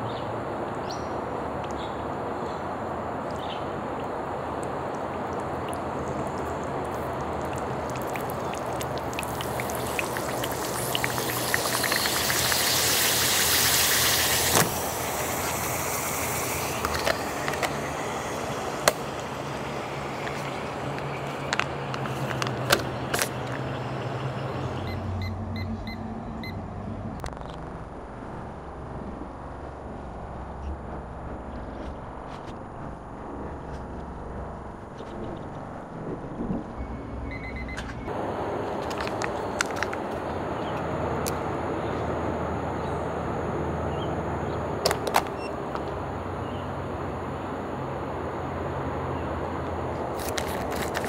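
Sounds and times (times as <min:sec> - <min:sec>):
heating pad hissing: 0:08.6 - 0:24.1.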